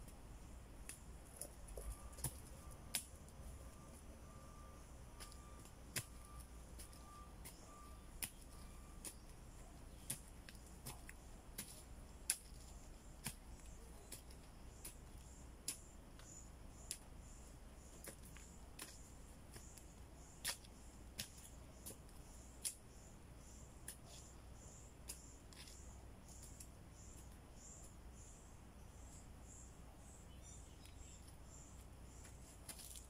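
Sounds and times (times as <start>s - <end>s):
hands crackling in soil and leaves: 0.0s - 17.4s, 30.4s - 33.0s
steady low hum: 0.0s - 33.0s.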